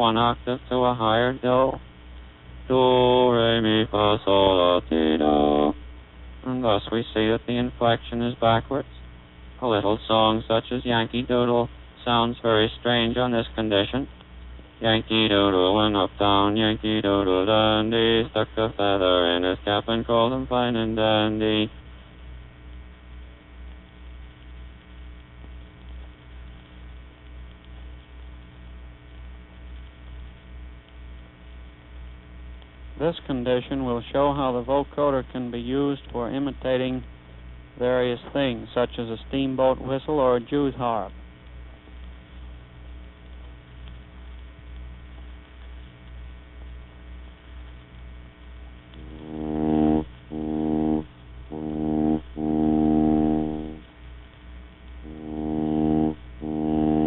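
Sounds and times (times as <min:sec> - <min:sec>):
electrical hum and hiss: 0:00.0 - 0:57.0
faint steady tones: 0:00.0 - 0:57.0
low pulsing throb: 0:03.9 - 0:05.9, 0:49.0 - 0:53.9, 0:55.0 - 0:57.0.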